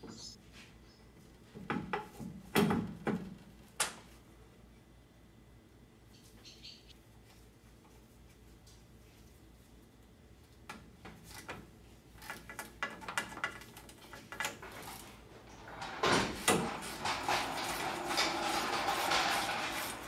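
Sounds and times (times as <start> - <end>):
metallic scraping and rubbing: 14.0 - 20.0.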